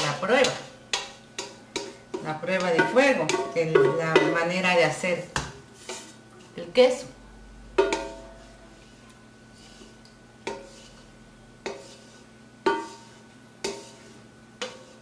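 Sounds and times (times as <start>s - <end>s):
wooden spoon knocking in pot: 0.0s - 5.6s, 7.8s - 8.3s.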